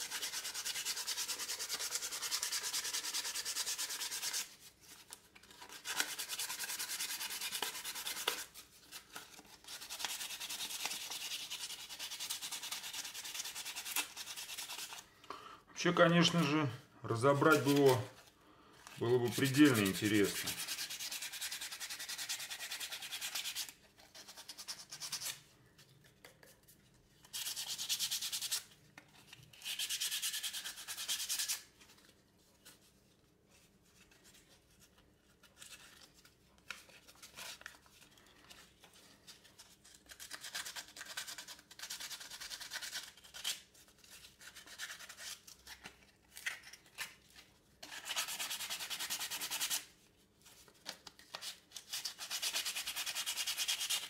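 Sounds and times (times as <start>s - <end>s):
sandpaper rubbing on wood: 0.0s - 4.5s, 19.2s - 23.7s, 52.0s - 54.0s.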